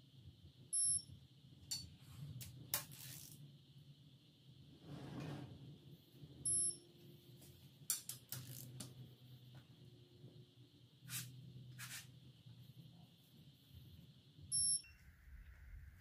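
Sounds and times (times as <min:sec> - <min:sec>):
high-pitched wrench beep: 0:00.8 - 0:01.1, 0:06.5 - 0:06.8, 0:14.5 - 0:15.0.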